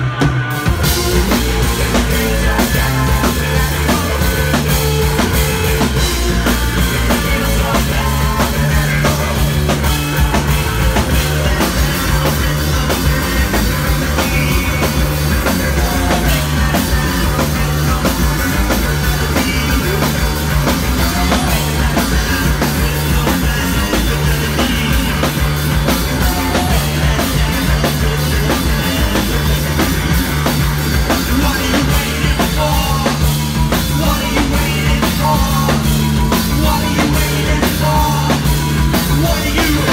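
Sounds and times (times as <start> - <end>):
person singing: 0.0 - 29.9, 31.0 - 39.9
rock band playing live: 0.0 - 39.9.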